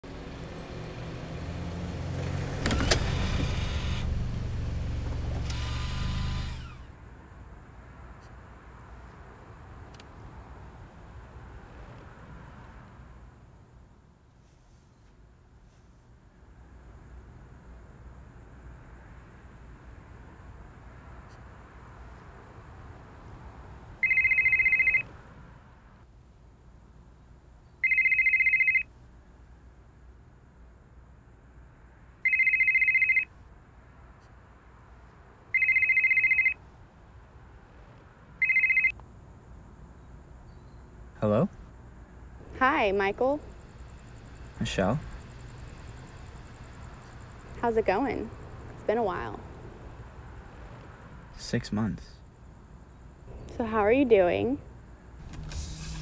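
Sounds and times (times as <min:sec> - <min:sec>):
phone ringing: 0:24.0 - 0:25.2, 0:27.8 - 0:29.0, 0:32.2 - 0:33.4, 0:35.5 - 0:36.7, 0:38.4 - 0:39.0.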